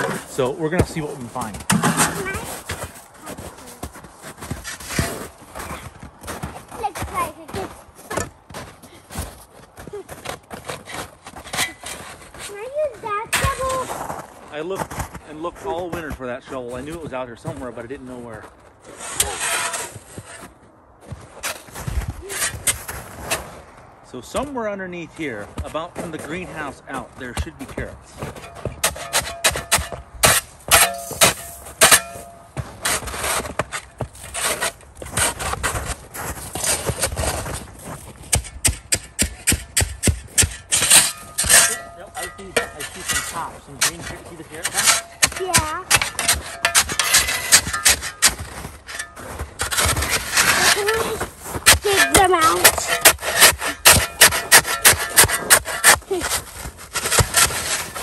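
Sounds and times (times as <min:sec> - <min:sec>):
shovel scraping into snow: 0:00.0 - 0:05.8, 0:18.8 - 0:20.5, 0:21.4 - 0:23.6, 0:28.6 - 0:38.2, 0:39.5 - 0:58.0.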